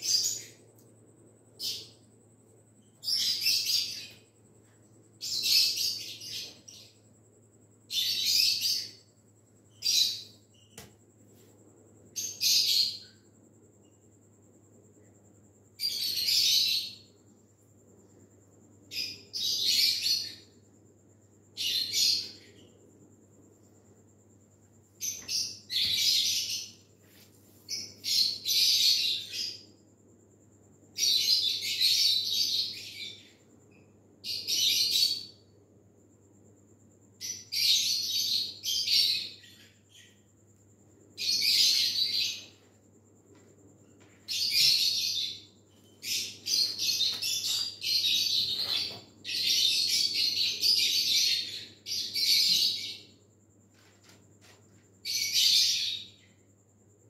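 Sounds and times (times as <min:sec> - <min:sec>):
faint steady hum: 0:00.0 - 0:57.0
birds chirping: 0:43.9 - 0:53.1.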